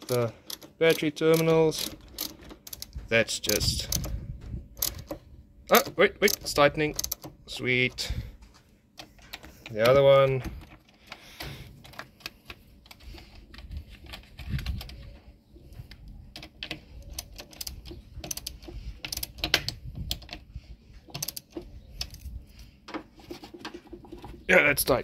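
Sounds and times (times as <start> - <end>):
socket wrench clicking on bolt: 21.1 - 22.2.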